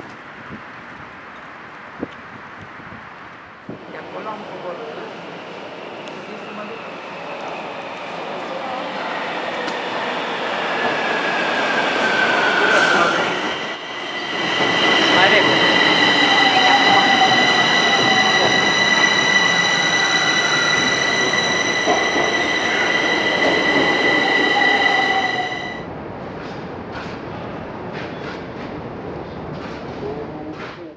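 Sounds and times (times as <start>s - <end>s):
train wheels rushing on rail: 3.6s - 30.2s
high whine: 12.6s - 25.9s.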